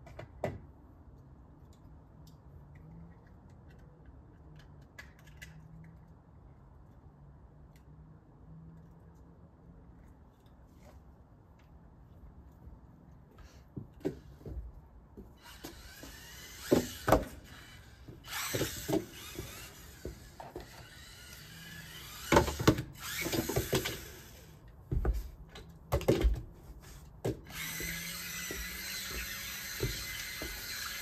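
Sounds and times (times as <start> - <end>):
small electric motor whining: 15.4 - 24.6, 27.4 - 31.0
toy car knocking and clattering: 15.5 - 17.7, 18.3 - 21.2, 22.0 - 24.3.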